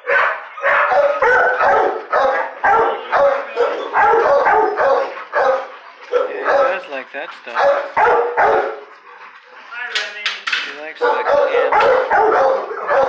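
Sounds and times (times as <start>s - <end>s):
dog barking: 0.0s - 6.9s, 7.5s - 8.9s, 11.0s - 13.0s.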